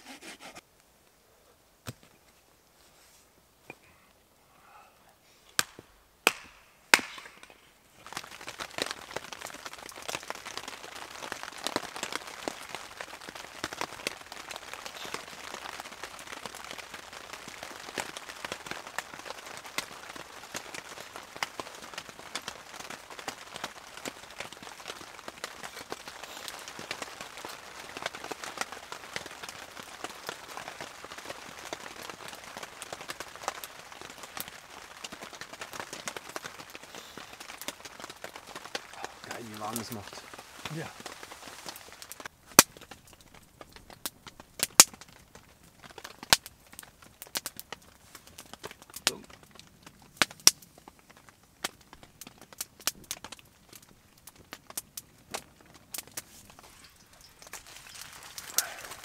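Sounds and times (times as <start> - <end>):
wood fire crackling and popping: 5.5 - 59.0
hatchet chopping wood: 6.3 - 7.4.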